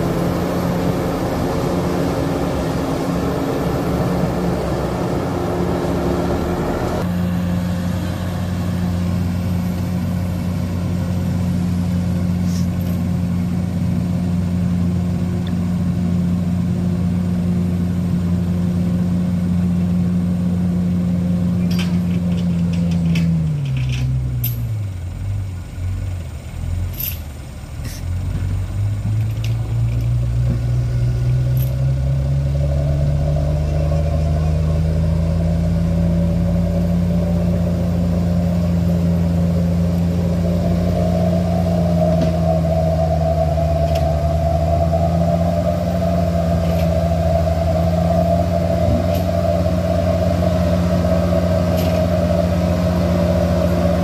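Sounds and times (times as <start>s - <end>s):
truck engine labouring uphill: 0.0s - 54.0s.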